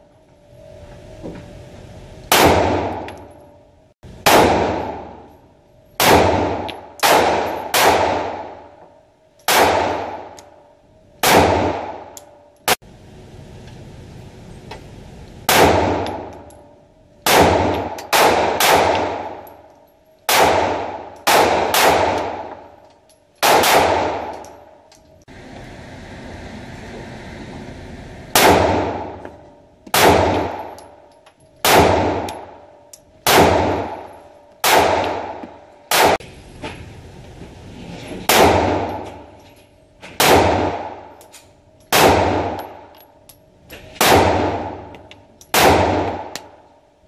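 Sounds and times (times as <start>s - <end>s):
pistol shots echoing: 4.2s - 5.3s, 6.0s - 8.7s, 9.5s - 10.4s, 11.2s - 12.2s, 15.5s - 16.4s, 17.2s - 19.5s, 20.3s - 22.7s, 23.4s - 24.4s, 29.9s - 31.0s, 31.6s - 36.2s, 40.2s - 41.1s, 41.9s - 42.9s, 44.0s - 44.9s, 45.5s - 46.6s.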